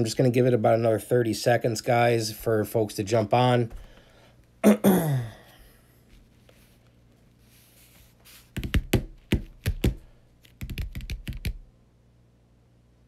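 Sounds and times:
rapid taps and clicks: 8.6 - 11.6.

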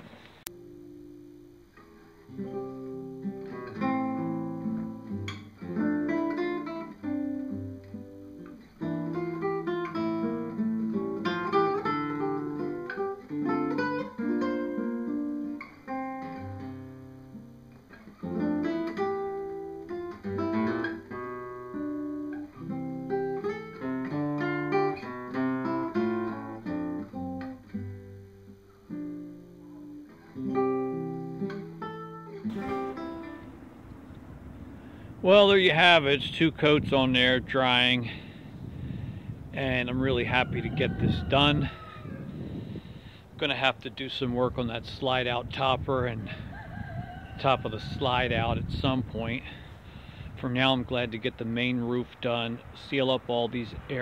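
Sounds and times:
classical guitar fingerstyle: 0.5 - 34.7.

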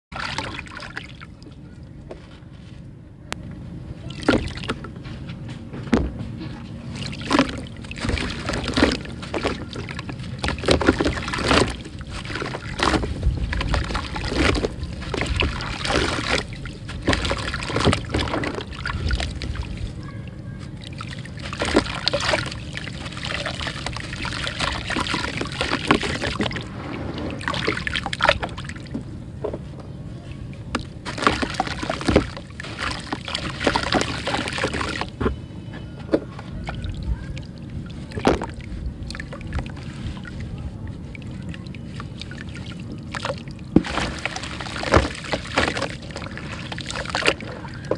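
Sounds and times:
water sloshing and splashing: 0.1 - 2.8, 4.0 - 47.9
mud crumbling into water: 6.9 - 19.8, 21.0 - 29.0, 30.7 - 35.2, 41.2 - 47.9.

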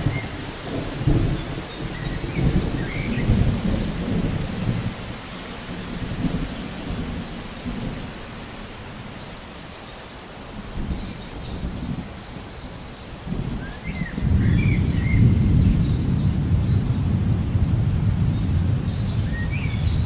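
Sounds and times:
rolling thunder: 0.0 - 8.2, 13.2 - 20.0
heavy rain on foliage: 0.0 - 20.0.

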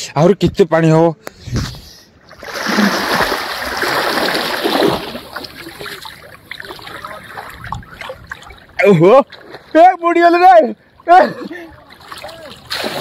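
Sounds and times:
water splashing: 2.2 - 13.0
water trickles and drips: 3.7 - 9.8, 10.8 - 12.9.

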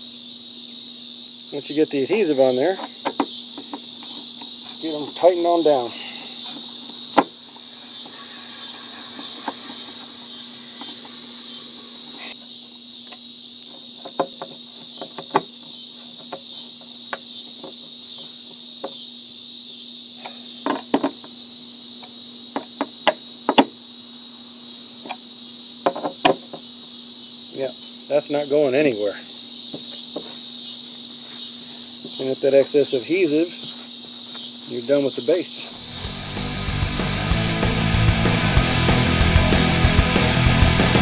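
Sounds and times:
crickets chirping: 0.0 - 41.0.

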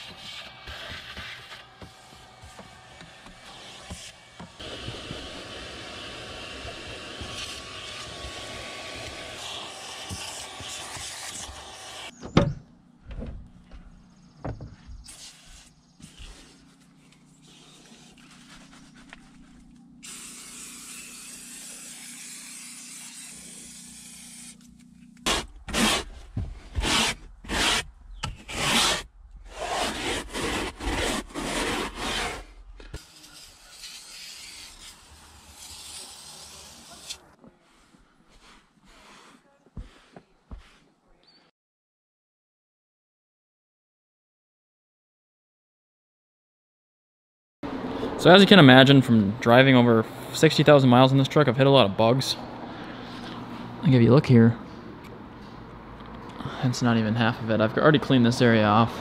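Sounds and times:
vacuum cleaner running: 1.7 - 12.1
aerosol can spraying: 3.6 - 12.1, 20.0 - 25.4, 33.0 - 37.2
rubbing strokes on carpet: 15.0 - 24.5, 33.0 - 41.0.

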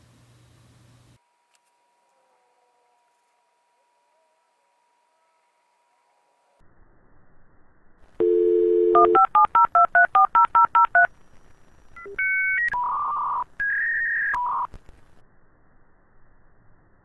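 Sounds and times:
phone dial tone: 8.2 - 11.1, 12.0 - 14.7
touch-tone dialing beeps: 8.2 - 11.1, 12.0 - 14.7
modem screeching handshake tones: 12.0 - 14.8.

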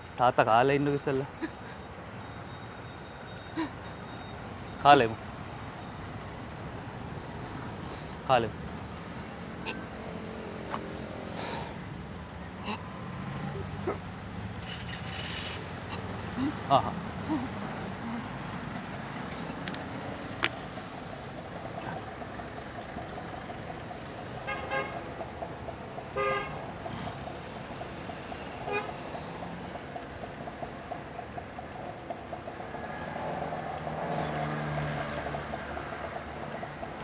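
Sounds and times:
steady traffic hum: 0.0 - 37.0
vehicle horns tooting: 24.4 - 25.1, 26.2 - 26.6, 28.6 - 29.0
vehicle passing: 32.4 - 37.0.

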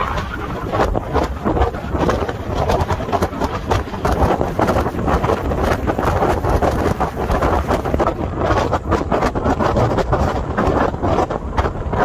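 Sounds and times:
car road and engine noise: 0.0 - 12.0
wind buffeting microphone: 0.0 - 12.0.

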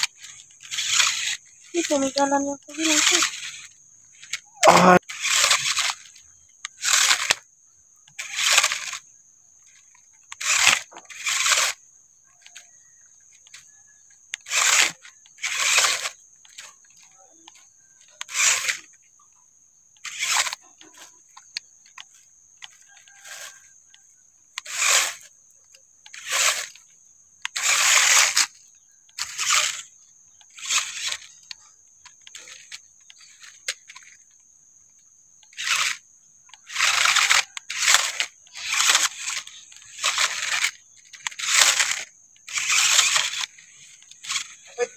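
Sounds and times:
toy car motor whirring: 0.0 - 44.9
tyres scrabbling over dirt: 9.7 - 44.9.

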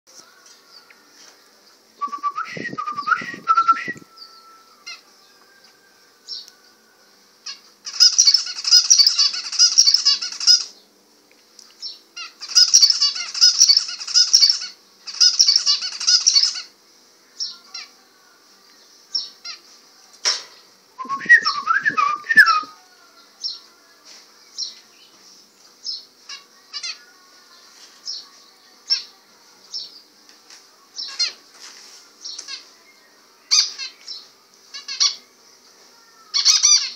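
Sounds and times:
finches calling: 7.5 - 10.7, 12.2 - 16.7
finch song bursts: 7.9 - 10.7, 12.4 - 16.7.

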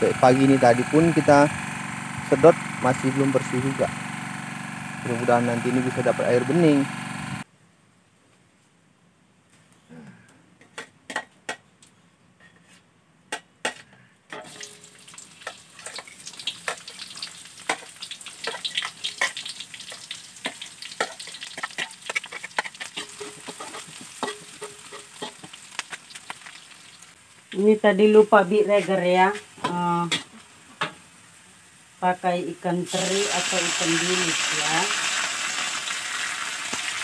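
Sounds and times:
oil sizzling: 0.0 - 7.5, 14.4 - 37.0
metal spatula scraping wok: 17.6 - 26.2.

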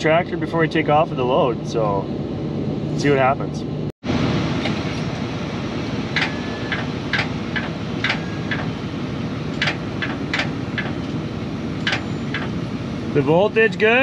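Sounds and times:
steady low rumble: 0.0 - 14.0
truck starter clicking: 6.2 - 8.7, 9.5 - 11.1.

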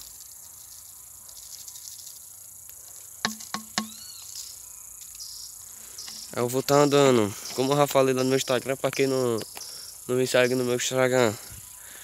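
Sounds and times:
insect chorus: 0.0 - 12.0
bird chirp: 3.3 - 12.0.

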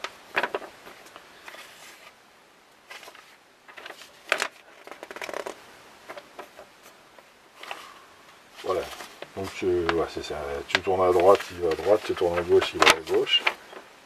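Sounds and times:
paper crinkles: 0.0 - 2.2, 2.8 - 7.0, 8.6 - 14.0
paper pages rustling: 0.0 - 2.2, 2.8 - 8.0, 8.6 - 14.0.

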